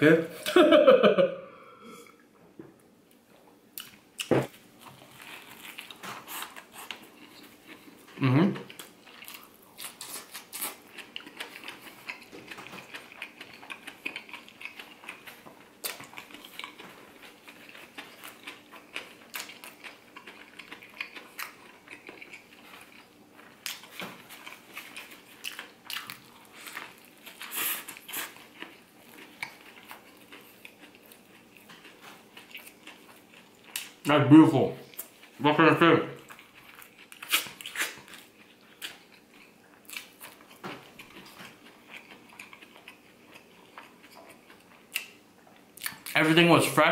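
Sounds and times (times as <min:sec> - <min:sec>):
crunchy sandwich chewing: 0:03.8 - 0:34.0, 0:36.2 - 0:46.2.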